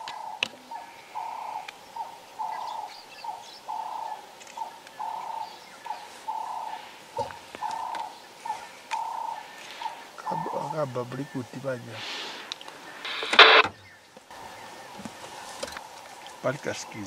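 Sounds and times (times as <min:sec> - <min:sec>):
bird hooting call: 0:00.0 - 0:11.4.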